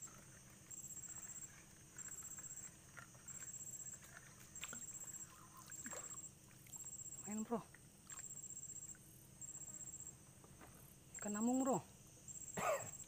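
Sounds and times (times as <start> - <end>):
water lapping: 0.0 - 8.4
high insect drone: 0.0 - 13.0
high pulsing insect trill: 0.0 - 13.0.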